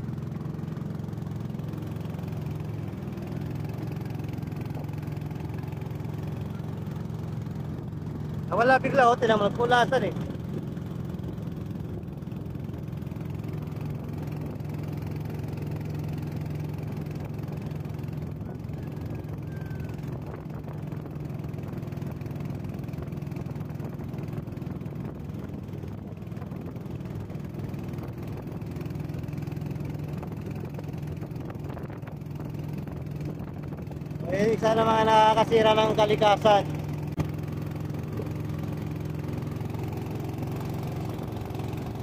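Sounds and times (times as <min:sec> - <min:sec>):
motor boat engine droning: 0:00.0 - 0:42.0.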